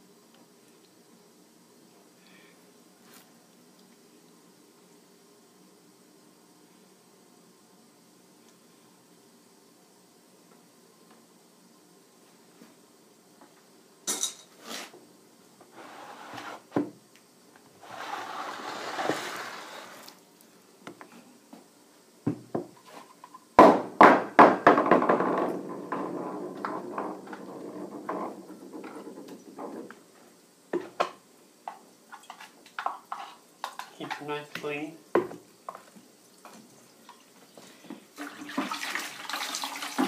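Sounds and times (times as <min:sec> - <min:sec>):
tools knocking on workbench: 0:22.3 - 0:22.7, 0:23.6 - 0:27.1, 0:35.2 - 0:35.4.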